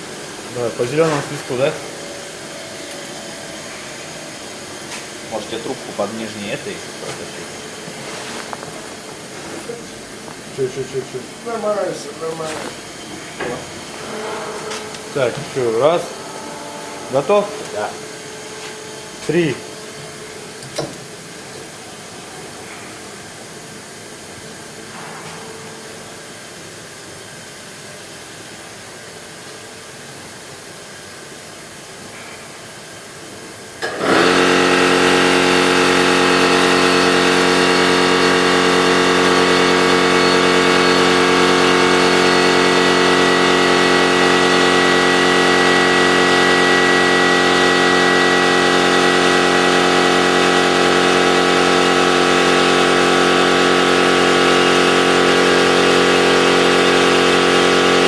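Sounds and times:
loud machine hum: 0.0s - 58.0s.

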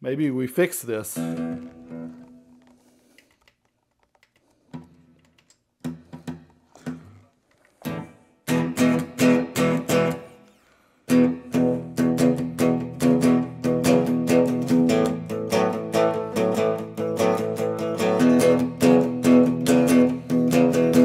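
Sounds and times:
guitar chords strummed with reverb: 1.2s - 2.6s, 7.8s - 10.4s, 11.1s - 21.0s.

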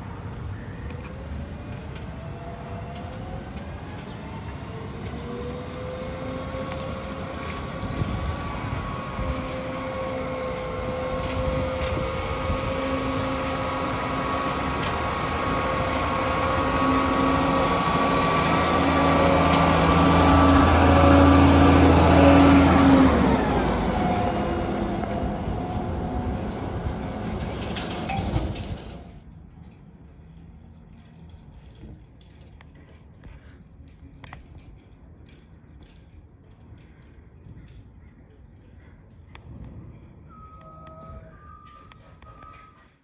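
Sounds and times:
garbage truck engine hum: 0.0s - 29.6s.

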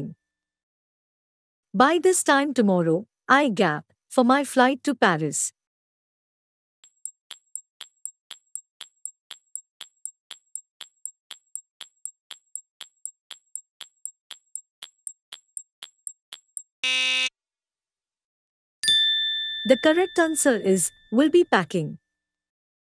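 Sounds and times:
timer ticking: 6.8s - 16.7s
loud buzzer: 16.8s - 17.3s.

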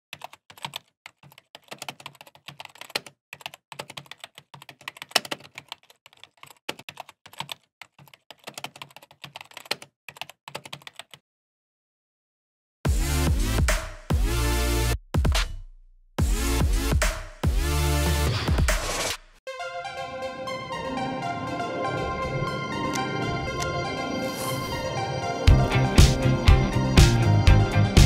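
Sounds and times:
keyboard typing: 0.1s - 11.2s.

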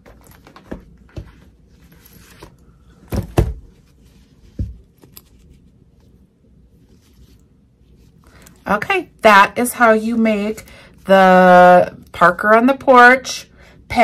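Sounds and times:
light fabric rustling: 3.7s - 8.8s.

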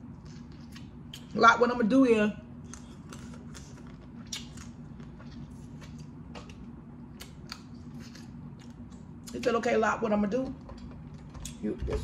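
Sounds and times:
faint hum: 0.0s - 12.0s
lip smacks: 2.7s - 9.4s.

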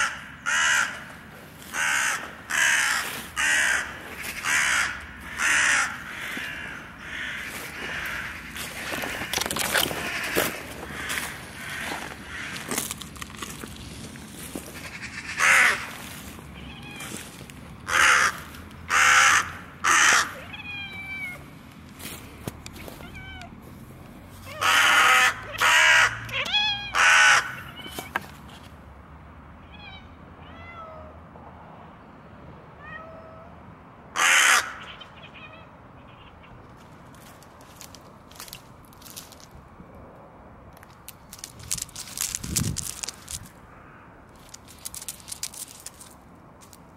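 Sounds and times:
crow cawing: 0.0s - 12.9s, 14.7s - 16.3s, 17.9s - 20.4s, 24.5s - 27.7s, 34.2s - 35.2s.

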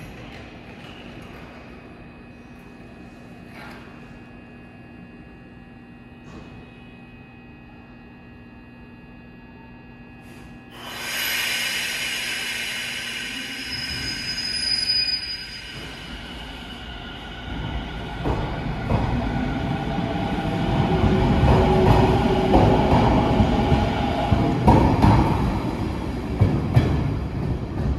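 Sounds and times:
train wheels rumbling on rails: 15.4s - 27.9s.

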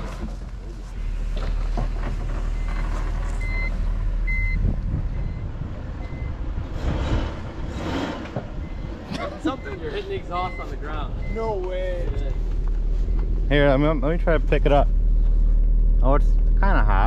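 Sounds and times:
car engine running: 7.6s - 17.0s.

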